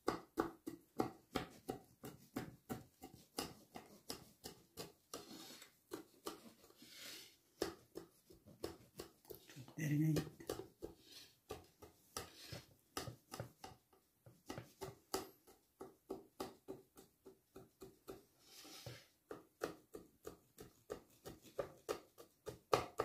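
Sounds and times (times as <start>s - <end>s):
knife sawing through bread crust: 3.4s - 7.4s.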